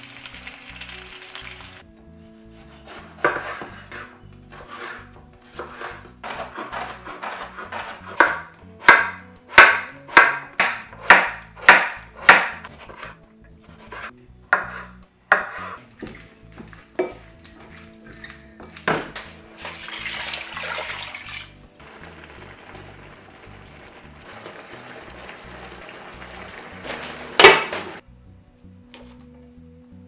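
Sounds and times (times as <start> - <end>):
faint background music: 0.0 - 30.0
knife chopping on cutting board: 2.5 - 17.2.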